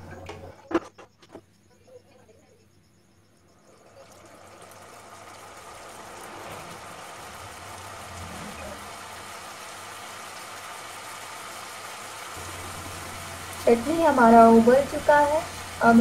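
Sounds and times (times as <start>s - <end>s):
sauce bubbling on the boil: 3.6s - 16.0s.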